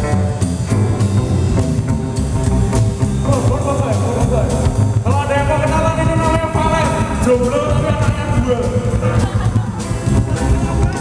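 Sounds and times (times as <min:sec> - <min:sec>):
drum kit beat: 0:00.0 - 0:11.0
electric guitar: 0:00.0 - 0:11.0
upright bass: 0:00.0 - 0:11.0
man singing: 0:05.0 - 0:09.8.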